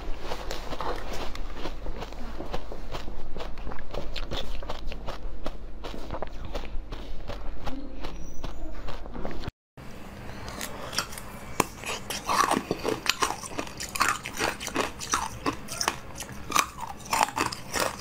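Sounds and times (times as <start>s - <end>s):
ice cubes crunching: 10.4s - 18.0s.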